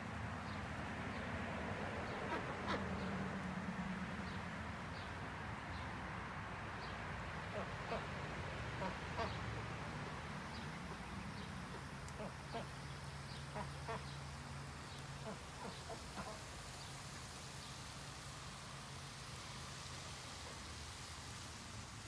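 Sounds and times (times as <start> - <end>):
ducks quacking: 2.3 - 2.9, 7.5 - 8.1, 11.7 - 12.7, 13.5 - 14.2, 15.2 - 16.5.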